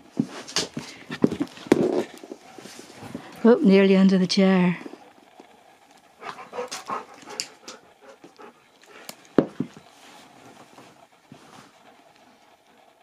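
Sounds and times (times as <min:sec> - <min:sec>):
dog panting and sniffing: 0:06.2 - 0:12.0.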